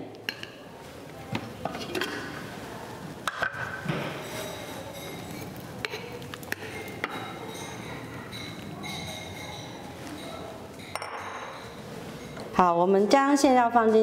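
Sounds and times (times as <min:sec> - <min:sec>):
glass bowls clinking: 0:03.3 - 0:12.6.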